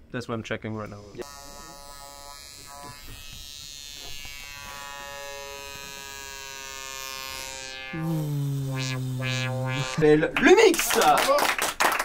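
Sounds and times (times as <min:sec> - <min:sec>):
buzzy synth tone: 0:00.9 - 0:10.4.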